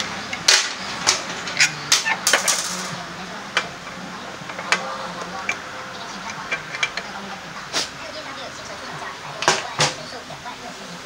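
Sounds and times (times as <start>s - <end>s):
metal clinks and knocks: 0.3s - 3.0s.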